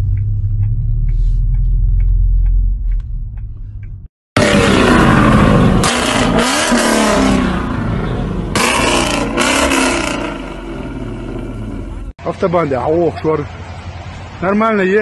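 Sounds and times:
car engine revving: 0.0 - 12.1
exhaust crackling blasts: 4.4 - 12.1.

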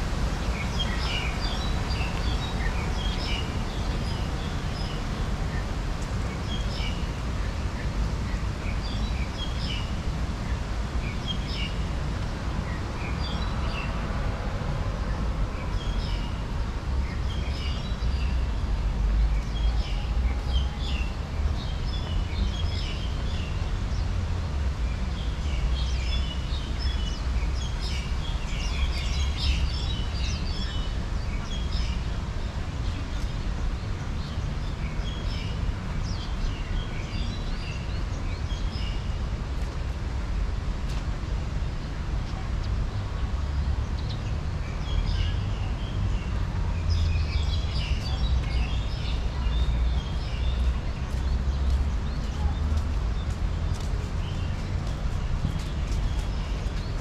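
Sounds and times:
small birds chirping: 42.2 - 57.0.

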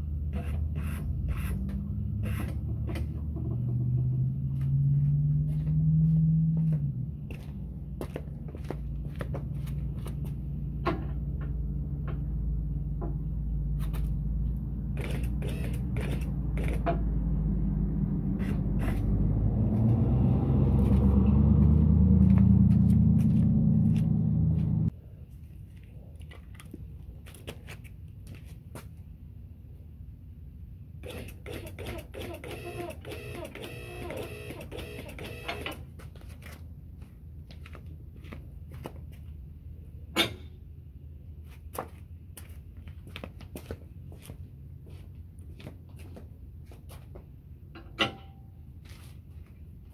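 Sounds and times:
hydraulic pump running: 15.0 - 17.0, 31.0 - 35.8.

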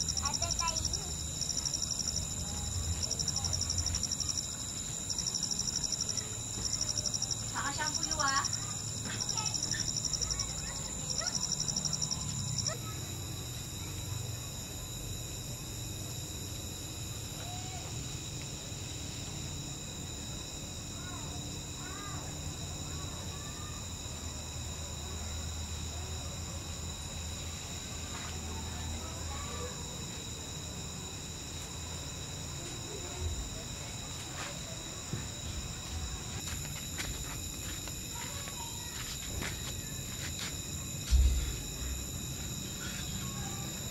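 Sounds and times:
crickets trilling: 0.0 - 43.9
insects calling: 0.0 - 43.9.

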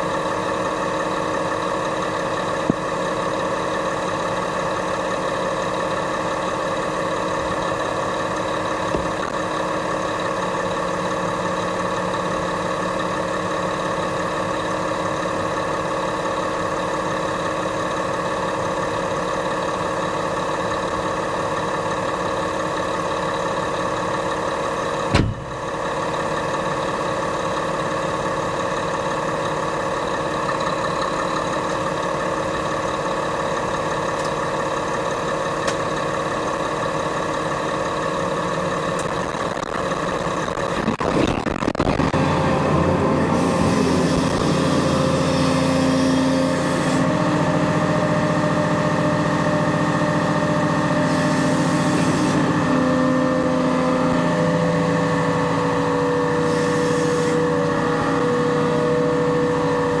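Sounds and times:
excavator diesel engine running: 0.0 - 60.0.

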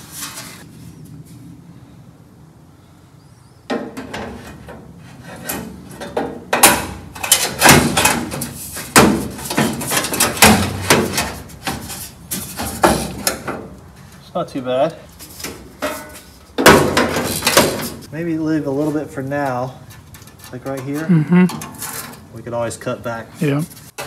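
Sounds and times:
metal panel clunking: 3.7 - 13.8, 15.5 - 18.1.

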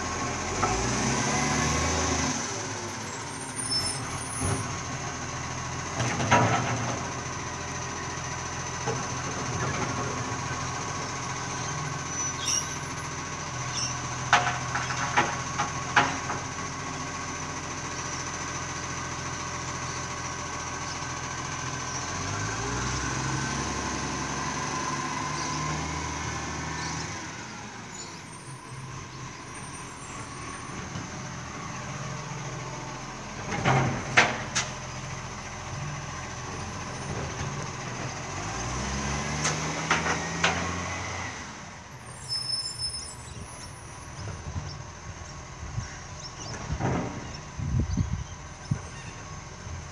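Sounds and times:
diesel truck engine running: 0.0 - 49.9
bird chirps: 11.7 - 13.0, 13.7 - 14.0, 27.9 - 30.3, 42.1 - 49.4.

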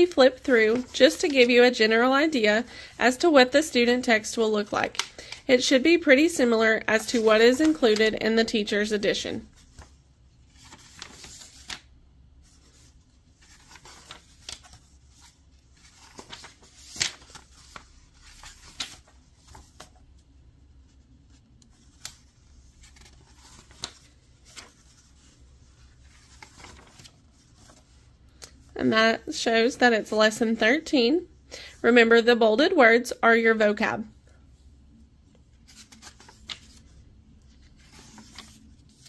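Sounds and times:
paper pages rustling: 0.0 - 2.0, 3.4 - 28.7, 35.4 - 39.0
pages flicking and snapping: 10.5 - 11.9, 13.4 - 20.0, 21.6 - 25.0, 26.0 - 28.6, 35.7 - 36.9.

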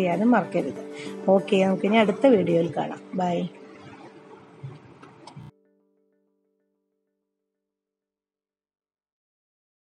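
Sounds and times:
faint background music: 0.0 - 5.7.

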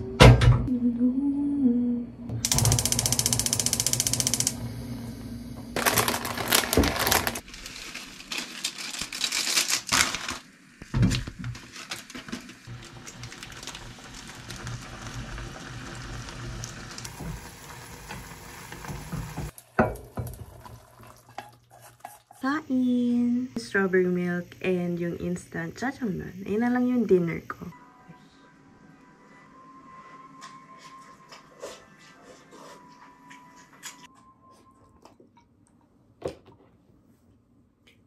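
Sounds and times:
noodles sizzling in a pan: 5.8 - 22.5.

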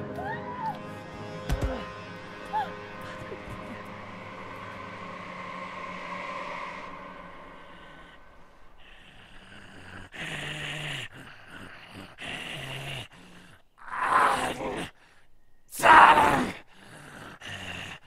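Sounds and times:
man growling like a monster: 8.8 - 15.0, 15.8 - 18.0
harsh cry: 13.8 - 14.9, 15.7 - 16.6.

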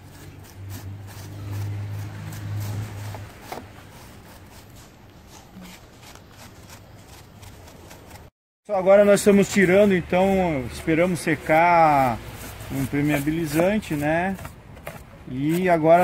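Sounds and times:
wire brush scrubbing wood: 0.0 - 16.0.

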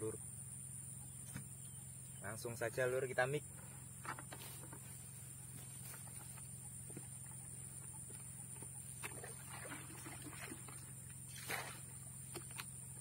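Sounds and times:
water sloshing and gurgling: 8.8 - 12.8
water splash: 9.0 - 12.0.

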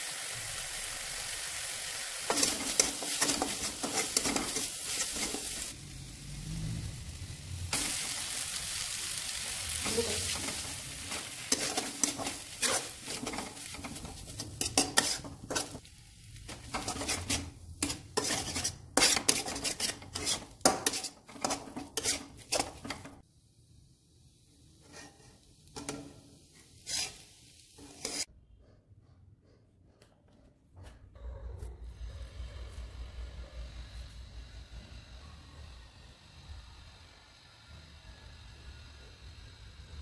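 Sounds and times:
frying sizzle: 0.0 - 28.3
spatula scraping steel wok: 2.2 - 5.7, 9.6 - 23.2, 24.8 - 28.3.

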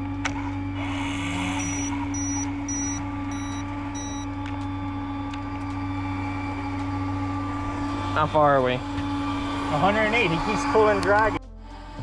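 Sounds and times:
fishing reel motor whining: 0.0 - 12.0
high electronic beeps: 1.6 - 4.3.

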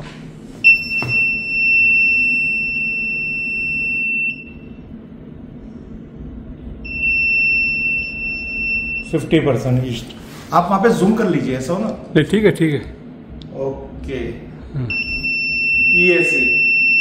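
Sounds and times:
high-pitched buzzer tone: 0.7 - 4.8, 6.8 - 9.2, 14.9 - 17.0.

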